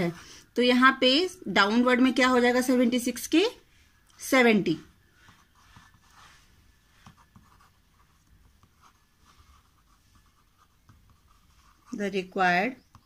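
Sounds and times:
marker pen scratching on paper: 4.3s - 13.0s.

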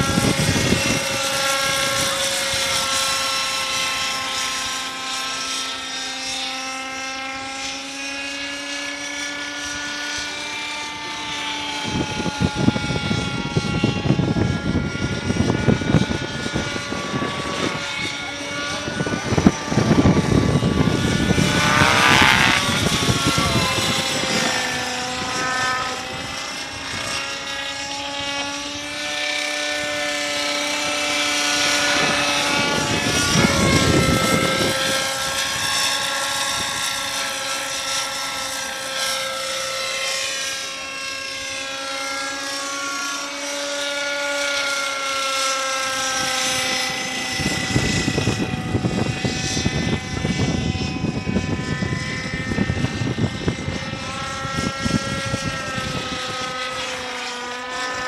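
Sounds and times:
wind gusts on microphone: 0.0s - 4.6s, 10.9s - 39.2s, 45.2s - 58.0s
model helicopter whine: 0.0s - 58.0s.

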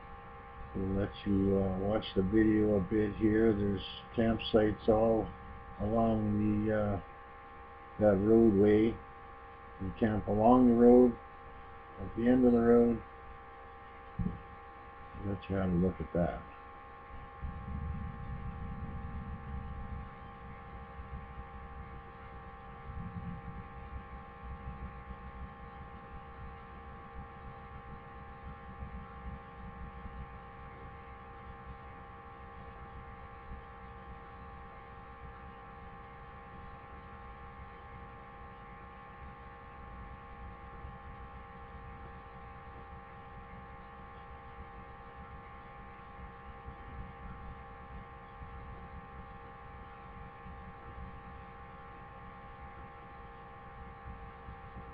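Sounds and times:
electrical hum: 0.0s - 54.9s
low rumble: 14.1s - 14.6s, 17.1s - 30.3s.

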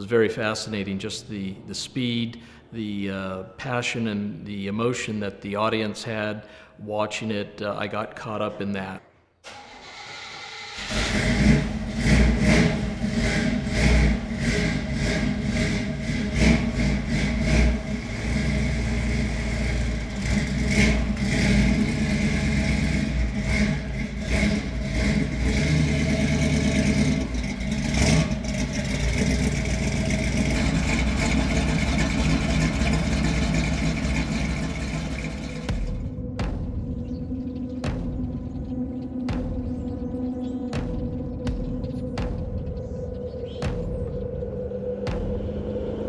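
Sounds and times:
car engine revving in blips: 9.5s - 45.7s.

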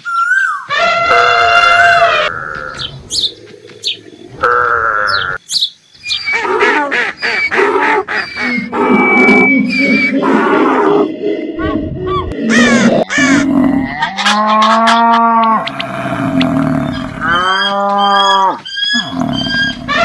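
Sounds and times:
long pitched animal call: 7.4s - 20.0s
overlapping animal cries: 12.1s - 16.0s, 16.9s - 20.0s.

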